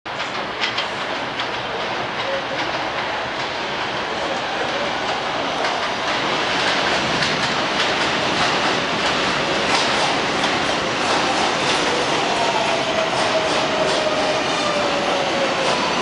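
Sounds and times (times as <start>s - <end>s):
subway train rumbling: 0.1s - 16.0s
wheels clicking over rail joints: 4.6s - 12.0s.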